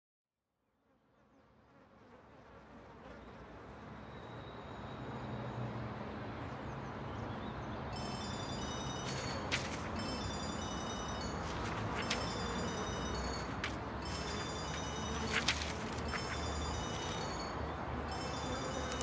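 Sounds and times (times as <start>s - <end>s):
low buzzing drone: 8.4s - 19.0s.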